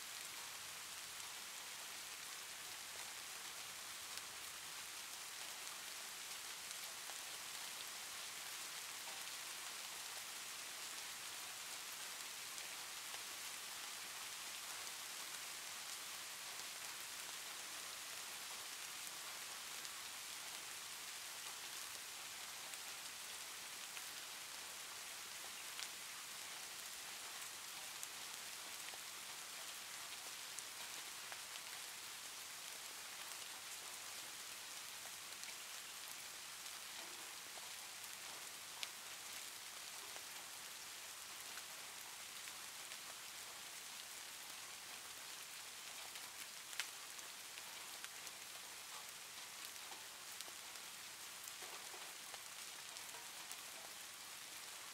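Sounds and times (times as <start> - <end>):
faint steady hiss: 0.0 - 54.9
soft ticks: 45.9 - 46.9.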